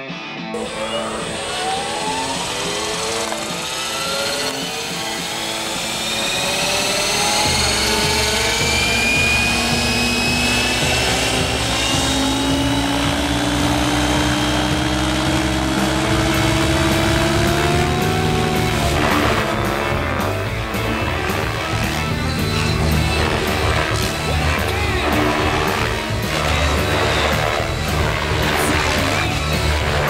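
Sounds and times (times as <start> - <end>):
helicopter motor and rotor whine: 0.6 - 30.0
background music with a beat: 6.8 - 30.0.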